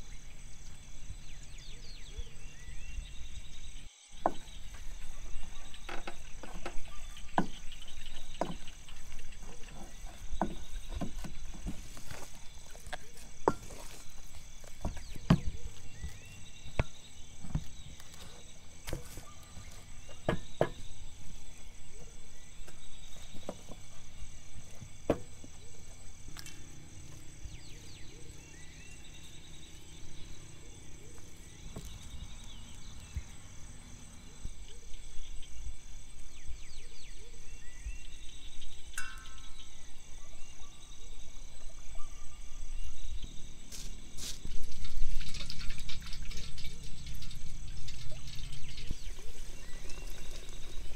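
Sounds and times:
crickets chirping: 0:00.0 - 0:50.9.

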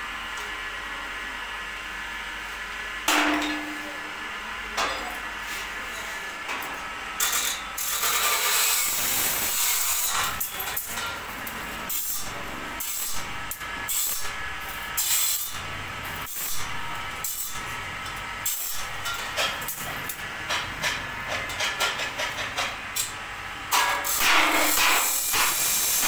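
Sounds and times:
knocks on steel bars: 0:03.1 - 0:03.8.

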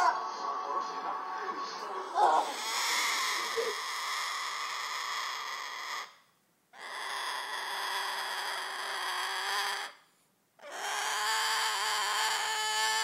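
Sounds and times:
cockatoo screaming wails: 0:02.1 - 0:06.2, 0:06.8 - 0:10.0, 0:10.6 - 0:13.0.

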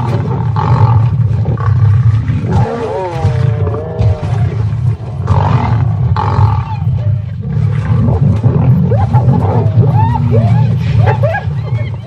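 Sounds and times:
lion growling: 0:00.0 - 0:12.0.

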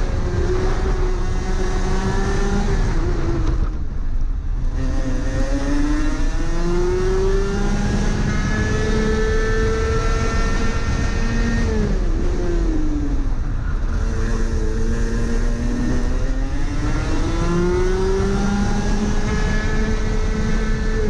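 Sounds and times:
kart engine revving: 0:00.0 - 0:03.8, 0:04.6 - 0:21.0.

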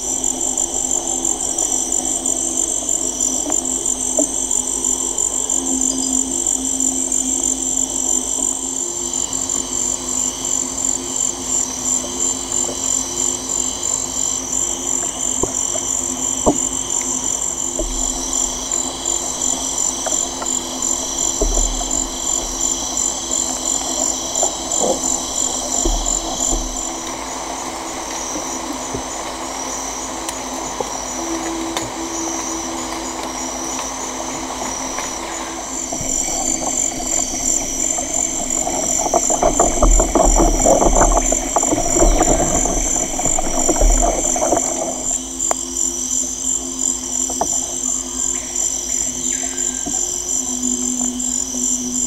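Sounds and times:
high-pitched drone: 0:00.0 - 0:52.0
dense crackling clicks: 0:15.0 - 0:27.2, 0:30.2 - 0:45.6.

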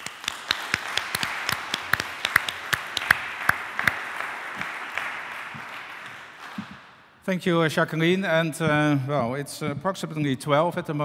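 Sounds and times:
audience applauding: 0:00.0 - 0:06.8
sharp close claps: 0:00.0 - 0:07.1.

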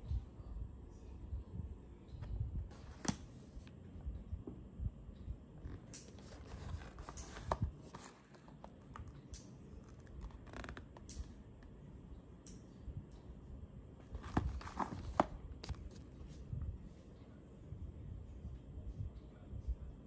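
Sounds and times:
cardboard boxes handled on table: 0:02.7 - 0:03.6, 0:05.7 - 0:09.1, 0:14.1 - 0:16.0.

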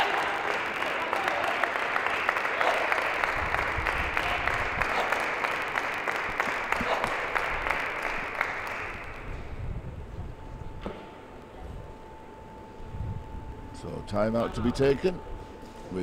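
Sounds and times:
spectators applauding: 0:00.0 - 0:09.4.

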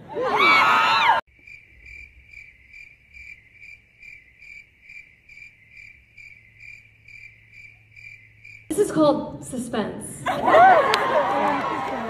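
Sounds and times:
cricket chirping: 0:01.3 - 0:08.8.

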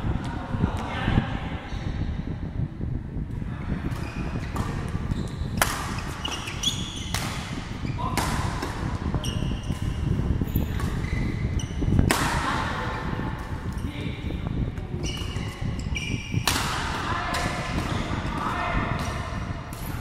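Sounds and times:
rackets hitting shuttlecock: 0:03.9 - 0:12.7, 0:15.0 - 0:20.0
shoes squeaking on court: 0:04.0 - 0:08.2, 0:09.0 - 0:12.1, 0:14.8 - 0:16.5.

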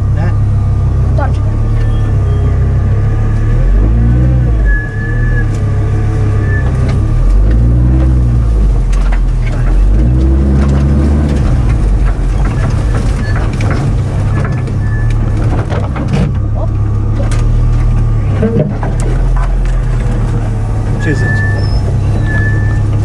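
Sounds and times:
off-road engine revving: 0:00.0 - 0:23.0
vehicle knocks and rattles: 0:06.5 - 0:23.0.

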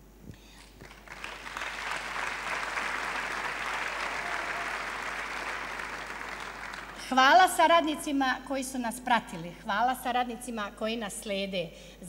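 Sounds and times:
crowd applauding: 0:00.8 - 0:07.1.

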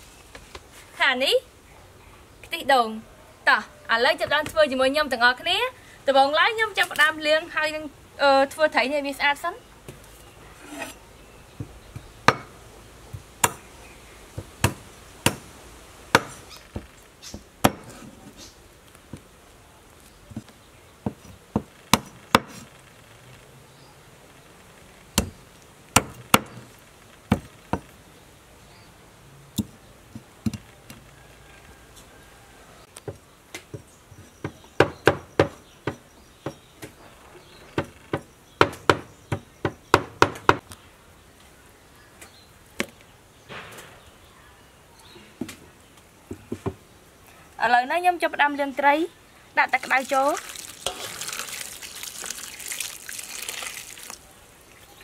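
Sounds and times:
cleaver chopping on wooden board: 0:12.3 - 0:12.5, 0:14.4 - 0:15.5, 0:17.6 - 0:18.0, 0:21.0 - 0:22.6, 0:26.0 - 0:26.7.

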